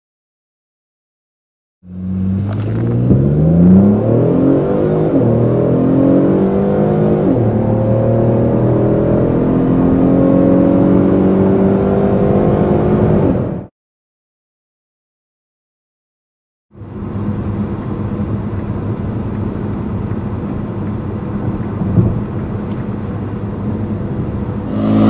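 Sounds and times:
car engine accelerating hard: 1.9s - 13.7s, 16.9s - 25.0s.

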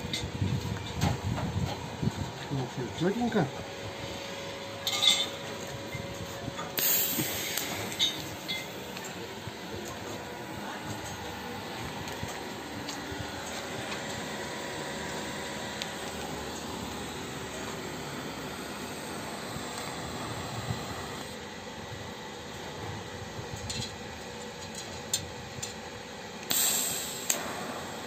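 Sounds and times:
welding arc hissing: 6.8s - 9.0s, 14.3s - 21.4s, 26.5s - 28.0s.

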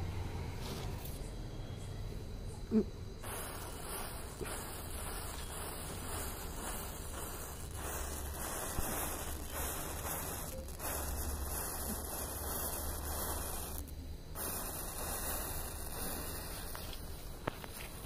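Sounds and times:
matches flaring with a hiss: 3.1s - 18.0s.

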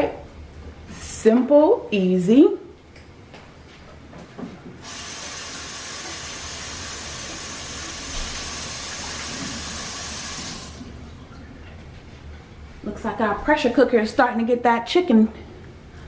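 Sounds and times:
pressure cooker hissing steam: 4.8s - 10.8s.

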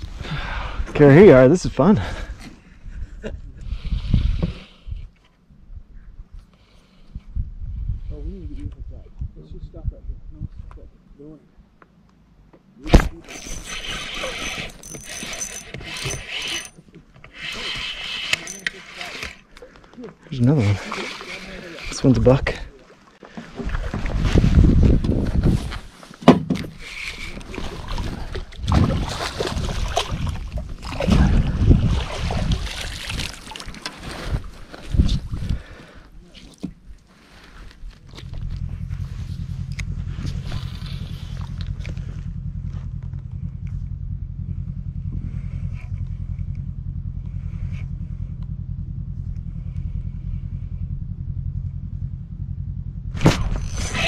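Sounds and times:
wind buffeting microphone: 2.8s - 6.4s, 7.1s - 10.8s, 23.6s - 25.8s, 26.8s - 35.8s
outboard motor droning: 12.8s - 25.2s, 26.6s - 54.0s
fish splashing in water: 27.5s - 34.0s.

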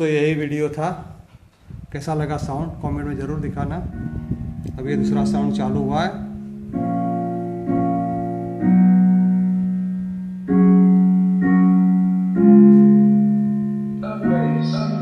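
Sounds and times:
slow piano chords: 3.2s - 15.0s.

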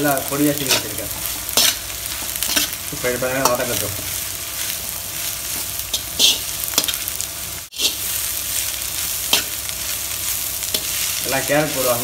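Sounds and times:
cabbage sizzling in hot oil: 0.0s - 12.0s
metal ladle scraping pan: 0.7s - 2.8s, 5.6s - 7.1s, 7.7s - 8.1s.

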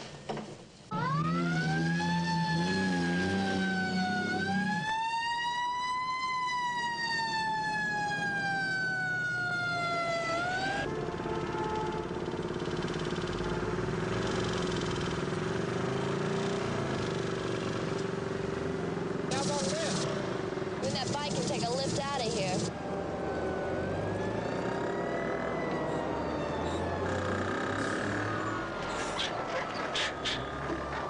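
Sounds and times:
street traffic noise: 0.0s - 31.0s
fire engine siren wailing: 0.9s - 14.6s, 18.7s - 31.0s
heavy engine: 10.4s - 31.0s.

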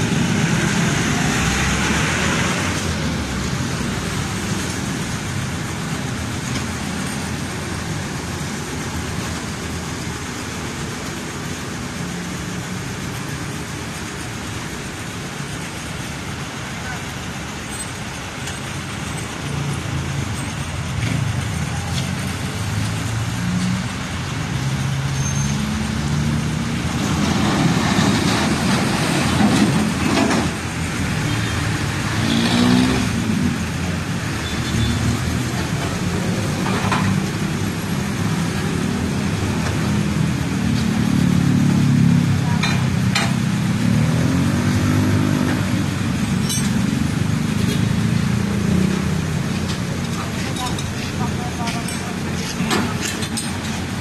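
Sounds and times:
vehicle engines passing: 0.0s - 54.0s
metallic chain clanks: 46.4s - 46.8s.

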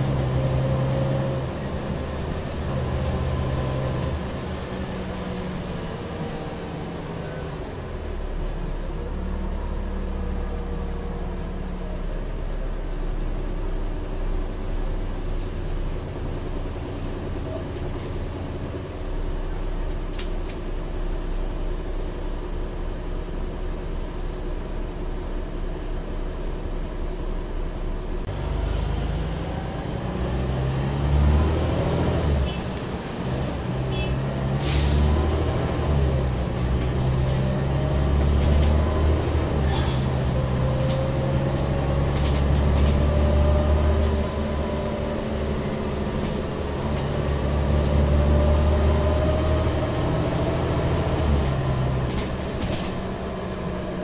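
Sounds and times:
bus engine revving: 0.0s - 20.6s, 28.2s - 54.0s.

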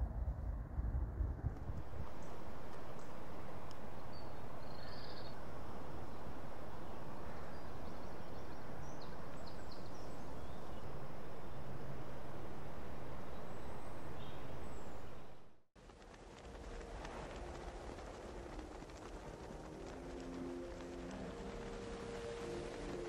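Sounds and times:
steady outdoor rushing noise: 0.0s - 23.0s
faint bird chirps: 3.9s - 11.9s.

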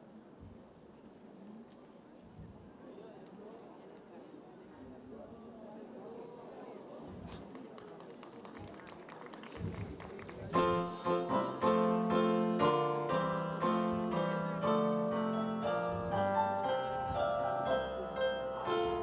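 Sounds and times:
slow piano chords: 10.6s - 19.0s.

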